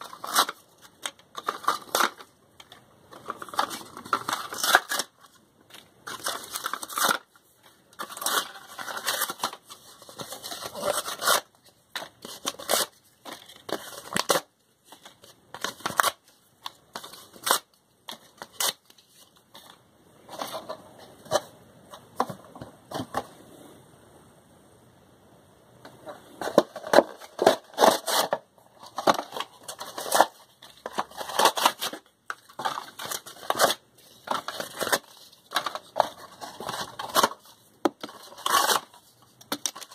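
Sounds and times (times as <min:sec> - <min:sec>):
paperboard tearing and crackling: 0:00.0 - 0:02.3, 0:03.2 - 0:05.2, 0:06.0 - 0:07.3, 0:08.0 - 0:16.3, 0:26.5 - 0:39.9.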